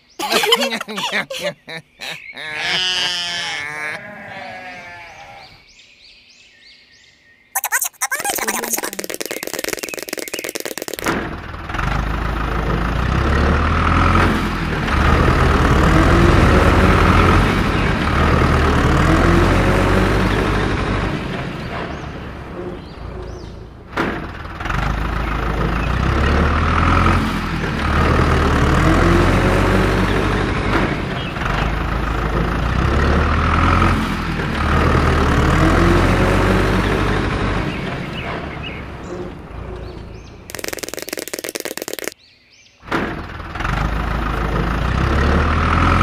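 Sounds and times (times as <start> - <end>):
tractor engine throbbing: 9.2 - 42.2, 42.9 - 46.0.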